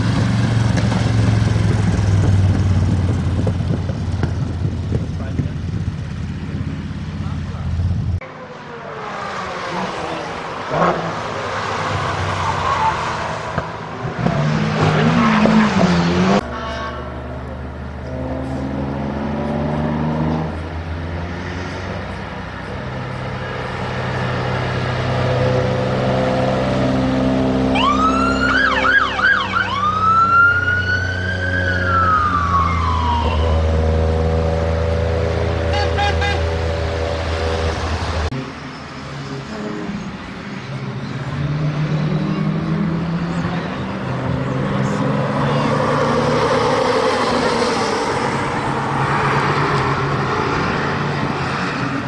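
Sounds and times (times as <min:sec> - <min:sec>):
car engine passing: 0:00.0 - 0:52.0
police siren wailing: 0:27.6 - 0:34.2.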